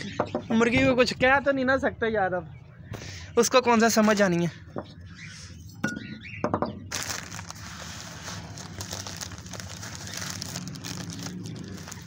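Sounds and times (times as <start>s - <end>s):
plastic bag crinkling: 6.9s - 12.0s.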